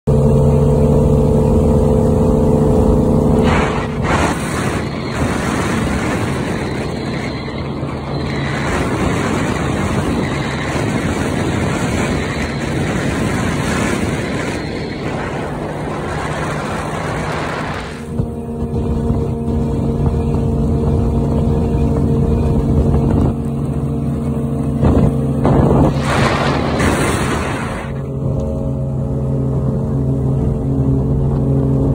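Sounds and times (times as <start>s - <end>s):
outboard motor running: 0.1s - 31.9s
loud rushing noise: 3.2s - 18.2s, 24.9s - 28.3s.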